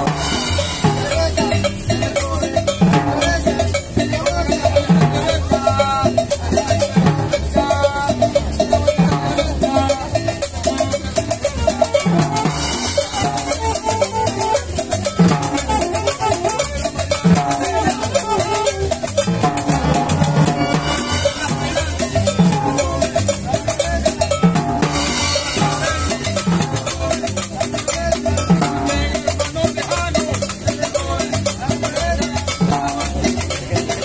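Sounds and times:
conga: 0.0s - 34.0s
drum kit: 0.0s - 34.0s
upright bass: 0.0s - 34.0s
saxophones playing melody: 11.5s - 22.0s.

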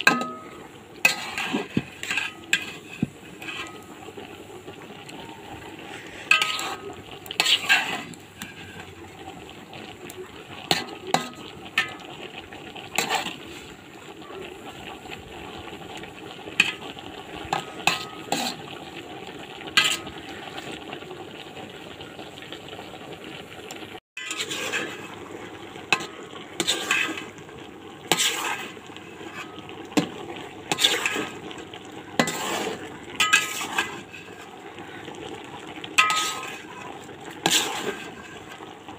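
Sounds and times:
metal spatula scraping a pan: 0.0s - 4.8s, 5.6s - 13.8s, 16.5s - 19.0s, 19.6s - 20.8s, 24.2s - 25.3s, 25.9s - 27.4s, 28.1s - 31.6s, 32.2s - 35.0s, 35.8s - 38.6s
food sizzling in a pan: 0.0s - 38.9s.

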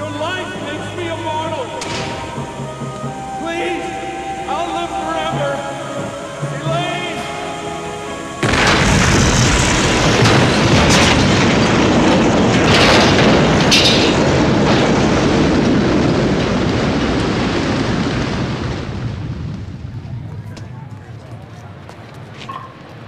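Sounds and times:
explosion-like roar: 8.2s - 20.2s
sharp crackles: 8.4s - 23.0s.

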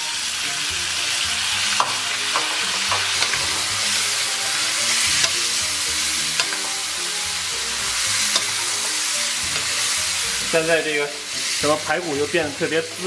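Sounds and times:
ribs sizzling in wok: 0.0s - 13.0s
spatula knocking and scraping pan: 1.8s - 5.6s.

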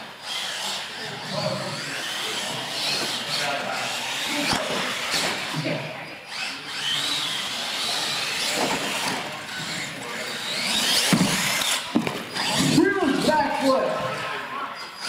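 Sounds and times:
toy truck electric motor whining: 0.0s - 15.0s.

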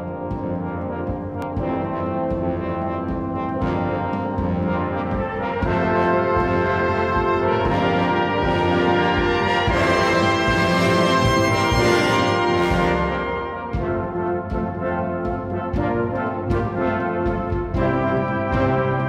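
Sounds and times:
brass music with held chords: 0.0s - 19.0s.

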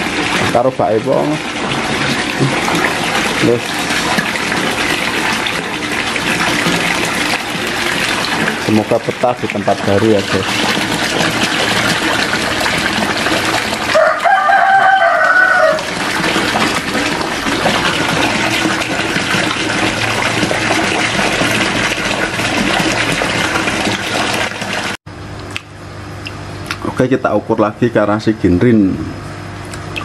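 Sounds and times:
water rushing into pond: 0.0s - 25.0s
rooster crowing: 13.9s - 16.0s.

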